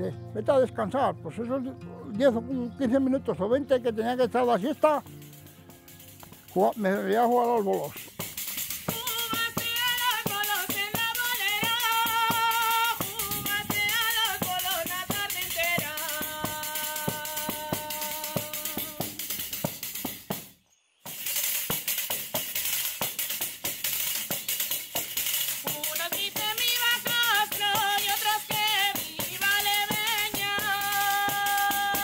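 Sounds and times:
frame drum with jingles: 4.2s - 32.0s
woman singing folk song: 8.7s - 19.3s, 25.6s - 32.0s.

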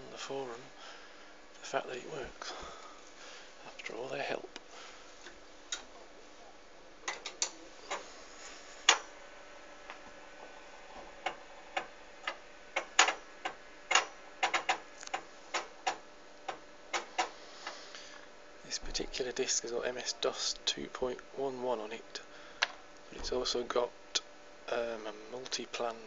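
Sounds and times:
faint steady hum: 0.0s - 26.0s
floppy disk drive clicking: 11.0s - 17.4s.

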